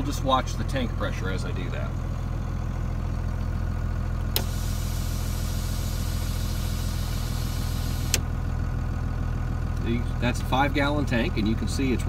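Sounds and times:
diesel engine idling: 0.0 - 12.0
click: 4.3 - 4.5
compressed air hissing: 4.4 - 8.2.

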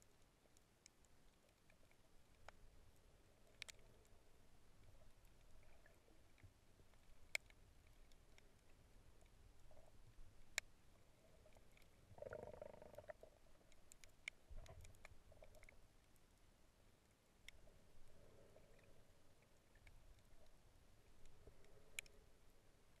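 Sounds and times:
underwater clicks: 0.8 - 4.2, 21.2 - 22.2.

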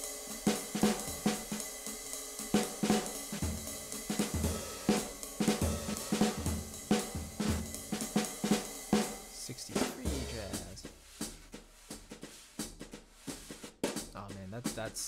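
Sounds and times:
drum kit groove: 0.0 - 15.0
brush twirling on snare: 10.1 - 13.8.

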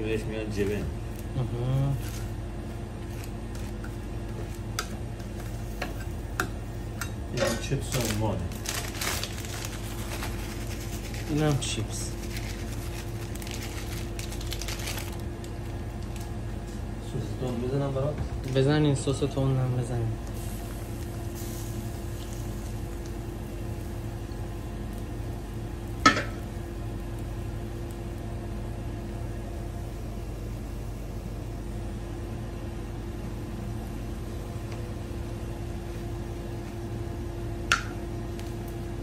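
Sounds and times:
constant hum: 0.0 - 39.0
bread sizzling on griddle: 8.2 - 15.3, 20.4 - 30.4.

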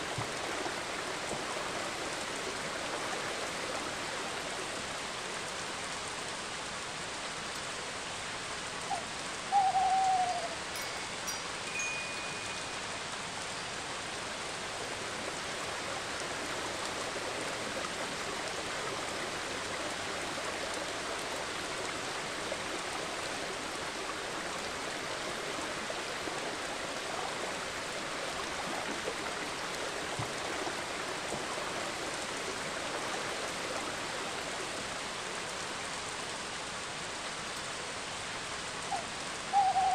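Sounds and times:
steady rain-like hiss: 0.0 - 39.9
owl hoot: 8.9 - 10.6, 38.9 - 39.9
faint thin high tone: 10.8 - 13.0.

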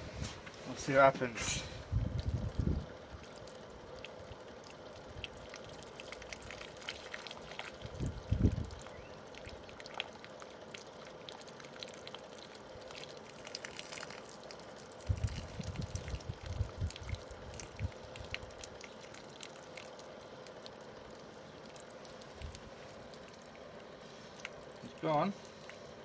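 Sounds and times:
water pouring and splashing on paving: 0.4 - 26.0.

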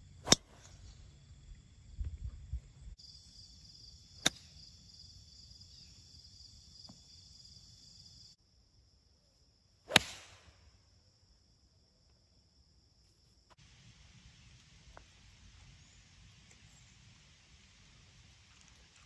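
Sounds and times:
insects chirring: 0.0 - 13.6
golf club striking ball: 0.2 - 0.6, 9.9 - 10.5.

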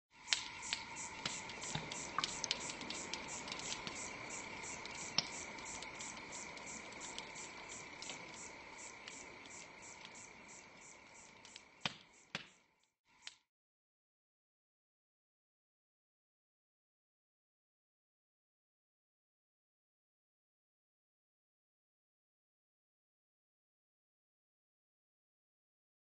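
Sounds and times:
fire crackling and hissing: 0.2 - 13.4.

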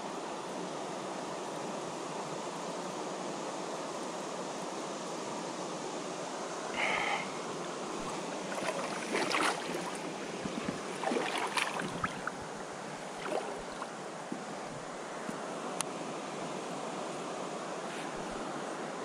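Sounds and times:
flowing water rushing: 6.3 - 19.0
water splashing and sloshing: 7.9 - 14.9.

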